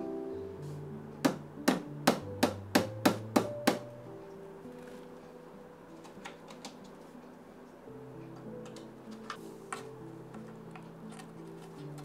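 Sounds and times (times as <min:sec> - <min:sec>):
soft background music: 0:00.0 - 0:12.0
hammer tapping wooden dowels: 0:01.2 - 0:03.9.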